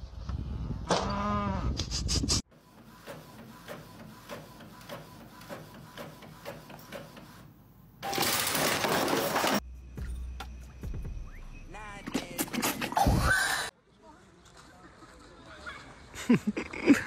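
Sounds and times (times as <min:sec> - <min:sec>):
printer ticking: 0:02.6 - 0:07.5.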